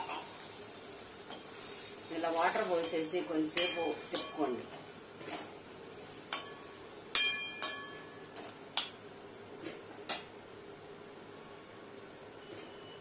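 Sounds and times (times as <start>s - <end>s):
faint hiss from pan: 0.0s - 7.1s.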